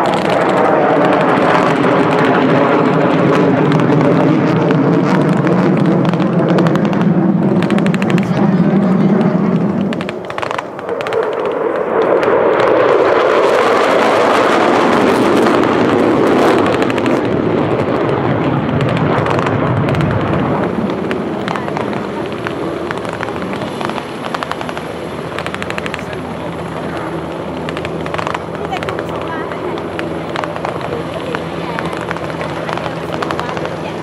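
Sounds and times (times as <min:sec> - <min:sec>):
jet fighters roaring past: 0:00.0 - 0:34.0.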